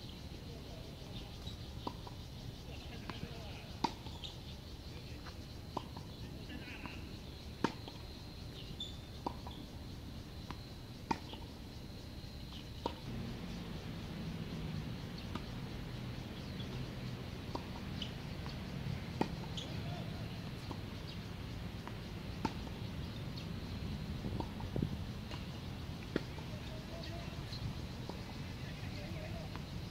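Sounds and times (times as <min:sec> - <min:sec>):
faint bird chirps: 0:06.0 - 0:09.7
low hum: 0:13.0 - 0:17.6
tennis ball struck with rackets: 0:17.4 - 0:18.1, 0:19.2 - 0:19.8, 0:21.8 - 0:22.7.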